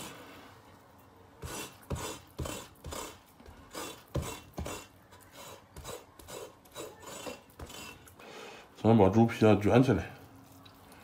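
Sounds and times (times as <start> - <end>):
knife scraping on wooden board: 1.4 - 8.2.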